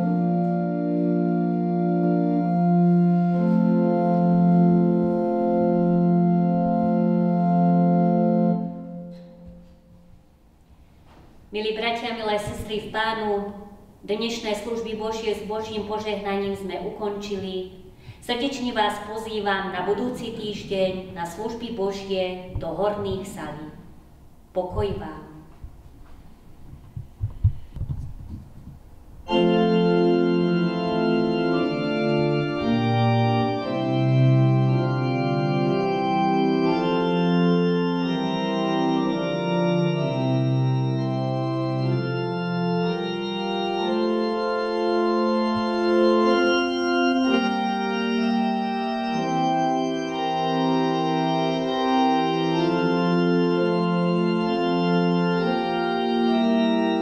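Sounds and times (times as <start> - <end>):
organ playing held chords: 0.0 - 10.5, 29.2 - 57.0.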